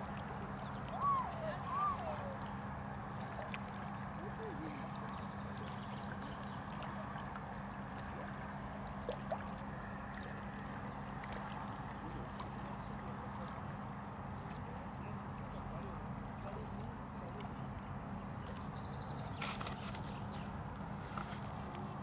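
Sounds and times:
distant engine drone: 0:00.0 - 0:22.0
outdoor background hiss: 0:12.8 - 0:22.0.

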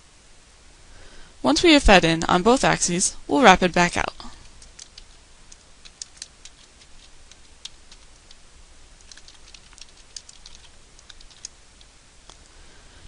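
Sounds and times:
keystrokes on computer keyboard: 0:04.5 - 0:08.4, 0:09.0 - 0:11.9.

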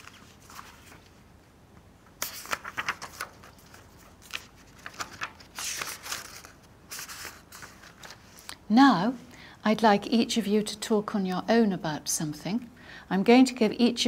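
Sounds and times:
paper rustling and pages turning: 0:00.0 - 0:01.3, 0:02.0 - 0:08.5.

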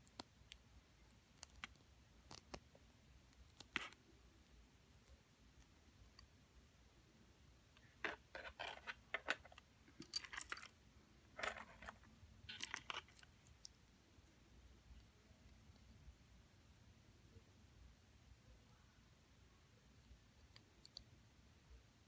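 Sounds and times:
metal jewelry clinking: 0:07.8 - 0:13.7.

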